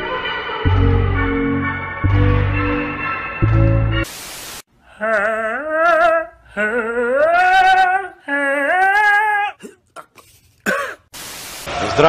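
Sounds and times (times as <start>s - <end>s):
cat yowling: 8.7s - 9.6s.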